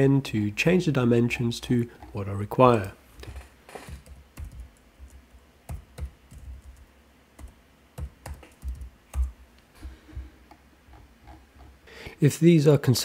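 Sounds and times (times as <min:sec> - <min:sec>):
keyboard keys clicking: 0:02.0 - 0:09.4.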